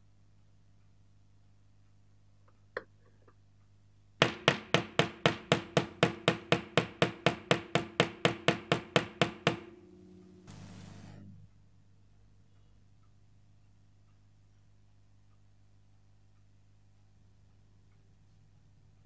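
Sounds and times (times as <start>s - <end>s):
soft hiss: 9.8s - 19.0s.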